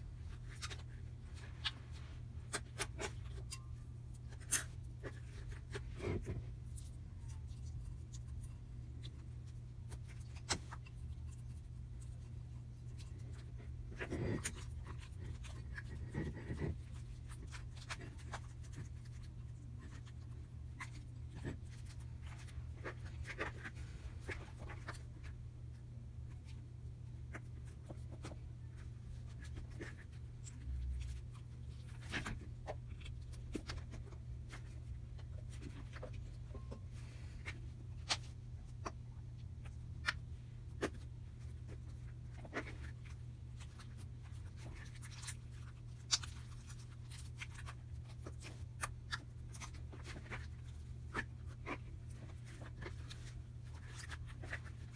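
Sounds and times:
fingers squishing slime: 0.0s - 54.9s
steady low hum: 0.0s - 54.9s.

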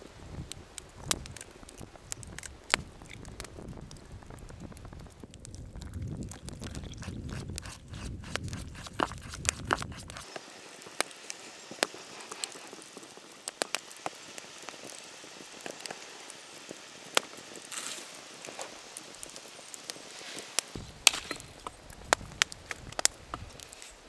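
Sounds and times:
spoon stirring batter: 6.3s - 10.2s
low rumble: 20.8s - 23.5s.

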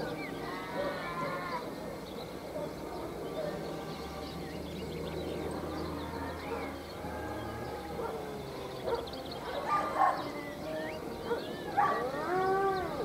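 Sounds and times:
dogs howling and yipping: 0.0s - 1.8s, 5.3s - 13.0s.

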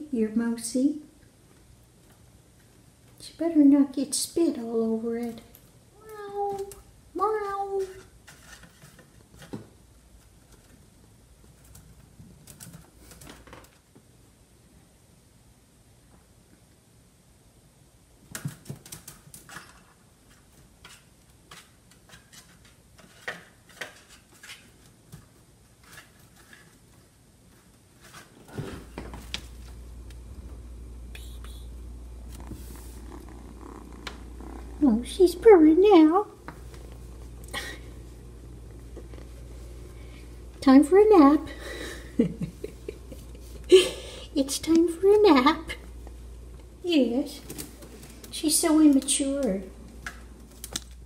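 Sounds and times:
cat purring: 29.5s - 49.8s.

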